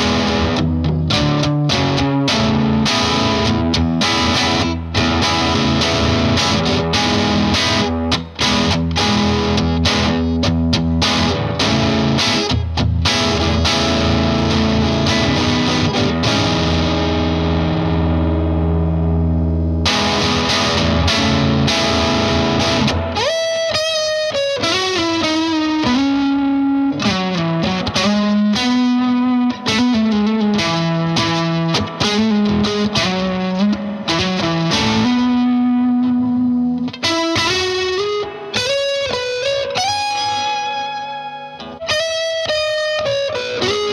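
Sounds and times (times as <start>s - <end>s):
distorted electric guitar: 0.0s - 43.9s.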